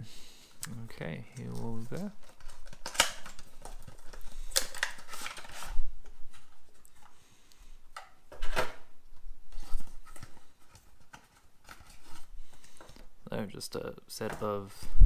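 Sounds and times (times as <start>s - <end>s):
cardboard and plastic scraping: 1.3s - 7.2s, 9.5s - 13.0s.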